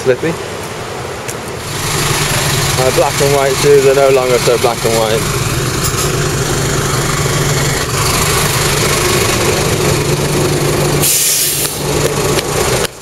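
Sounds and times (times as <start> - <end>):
bus engine running: 1.6 - 13.0
bright hiss: 10.9 - 11.9.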